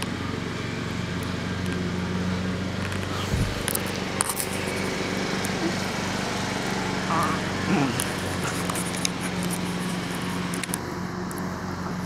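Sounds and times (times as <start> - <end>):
low motor hum: 0.0 - 12.0
sharp clicks: 8.0 - 11.5.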